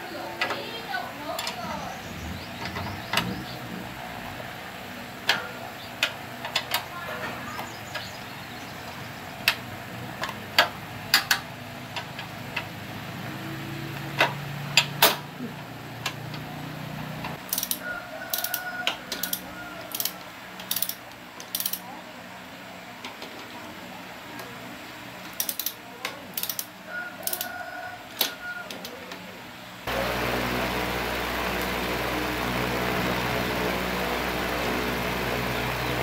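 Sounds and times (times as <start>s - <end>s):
motorcycle engine running: 0.6s - 18.6s, 29.9s - 36.0s
mechanical clicks and knocks: 17.2s - 21.8s, 25.3s - 27.4s.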